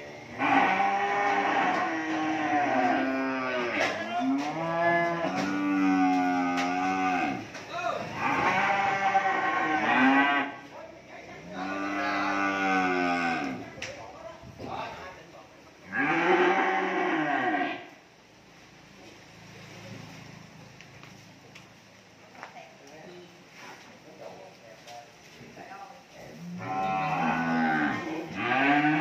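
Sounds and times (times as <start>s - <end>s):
cattle mooing: 0.3s - 10.6s, 11.5s - 13.7s, 15.9s - 17.9s, 26.4s - 29.0s.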